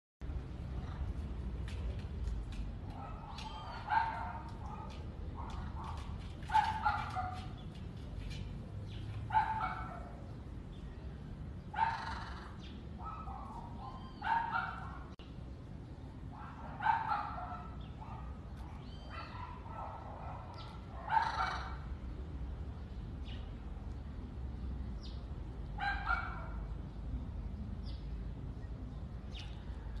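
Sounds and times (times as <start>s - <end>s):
steady low background noise: 7.7s - 30.0s.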